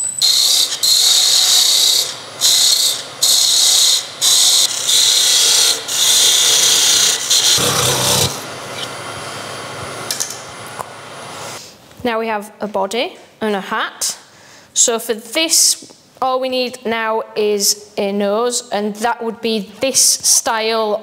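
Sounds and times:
lathe tool hissing cut into wood: 0.2s - 9.2s.

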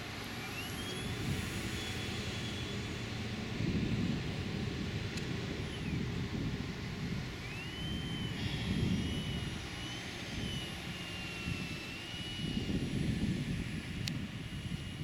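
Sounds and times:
model plane motor whine: 0.0s - 15.0s
steady low rumble: 1.0s - 9.6s.

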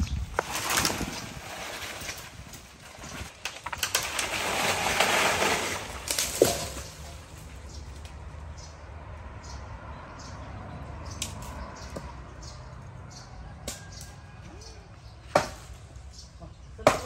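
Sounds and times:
sharp wood crack: 0.0s - 8.2s, 15.3s - 15.9s
leaves and branches rustling: 0.0s - 8.7s.

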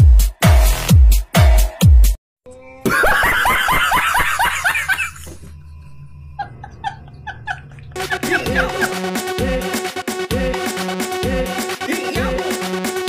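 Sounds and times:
person laughing: 2.8s - 5.4s, 6.4s - 9.2s.

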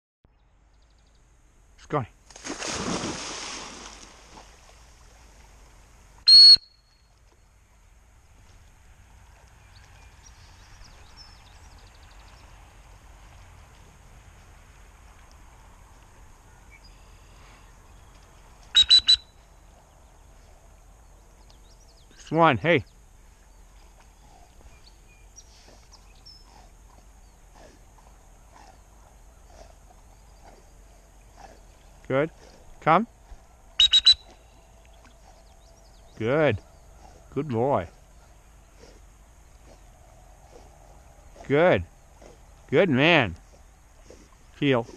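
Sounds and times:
low rumble of wind: 0.3s - 44.9s
dog splashing into water: 2.3s - 5.4s
dog-training whistle blast: 6.3s - 6.8s, 18.7s - 19.3s, 33.8s - 34.2s.

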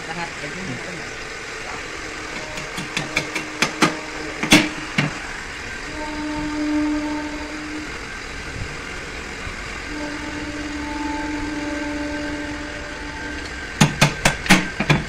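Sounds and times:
workshop machine humming: 0.0s - 15.0s.

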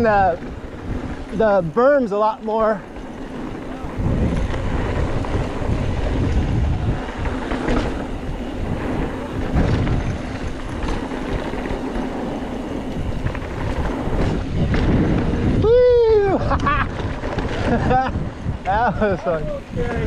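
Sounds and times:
bike rattling clicks and knocks: 0.0s - 20.0s
bike tyres rolling on dirt: 0.0s - 20.0s
wind buffeting microphone: 0.0s - 20.0s.

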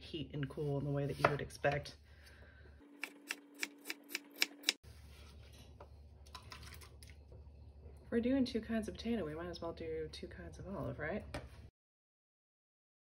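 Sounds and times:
knife chopping on wooden board: 1.1s - 1.4s.

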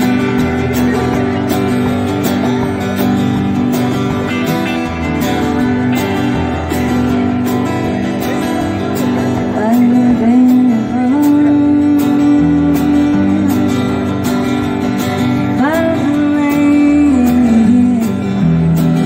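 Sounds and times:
electric guitar: 0.0s - 19.0s
strummed acoustic guitar: 0.0s - 19.0s
woman singing: 9.4s - 14.2s, 15.4s - 19.0s.

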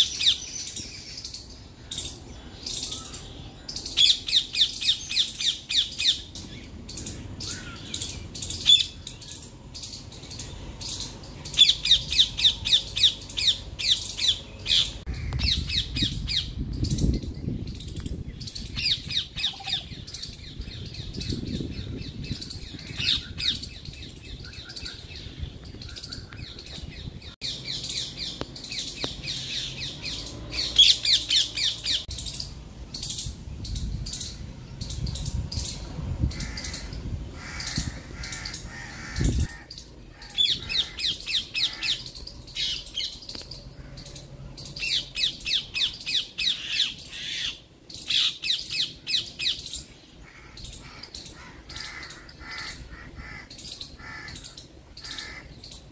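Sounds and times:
hornbill squealing calls: 36.3s - 43.1s, 43.7s - 55.8s.

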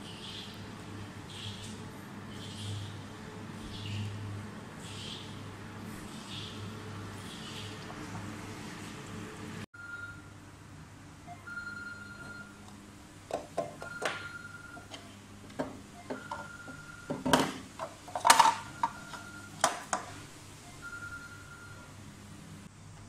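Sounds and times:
electronic beep: 11.3s - 12.6s, 13.9s - 14.9s, 16.0s - 17.1s, 18.7s - 19.6s, 20.6s - 21.9s
plastic housings clicking and knocking: 13.3s - 14.2s, 17.1s - 20.1s.

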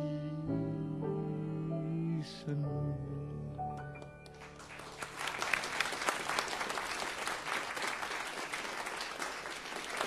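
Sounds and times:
song accompaniment: 0.0s - 4.9s
audience applauding: 4.2s - 10.0s.

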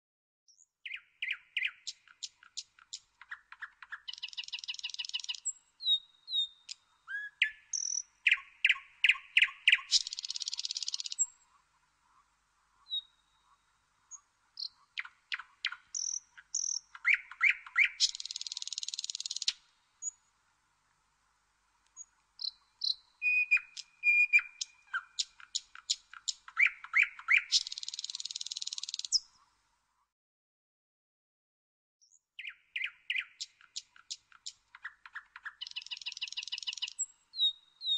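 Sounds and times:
nightingale singing: 0.5s - 11.6s, 12.8s - 20.3s, 21.9s - 29.4s, 32.0s - 37.9s.

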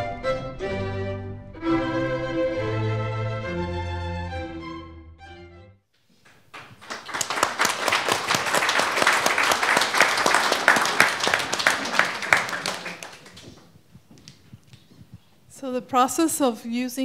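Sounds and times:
audience applauding: 6.2s - 13.7s.

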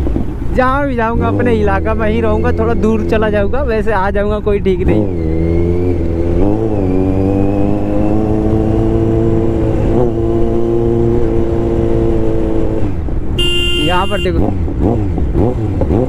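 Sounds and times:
motorcycle engine cruising: 0.0s - 16.0s.

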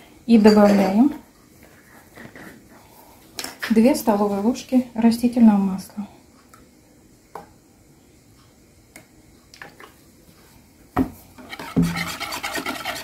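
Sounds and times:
whisk beating batter in bowl: 11.4s - 13.0s.

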